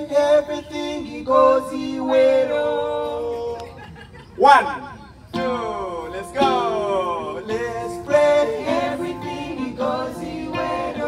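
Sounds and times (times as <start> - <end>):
acoustic guitar: 5.3 - 11.0.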